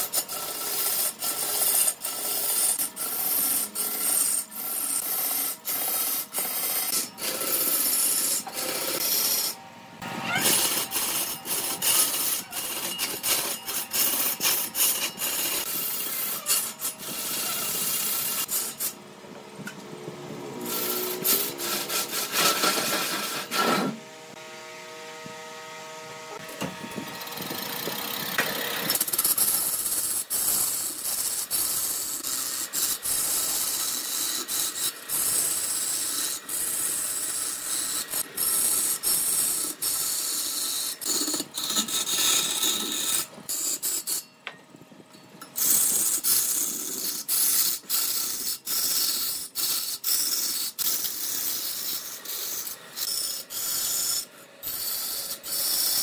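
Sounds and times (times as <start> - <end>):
lathe tool scraping wood: 0.0 - 19.0, 20.6 - 24.4, 26.3 - 44.3, 45.6 - 56.0
lathe humming: 51.0 - 56.0.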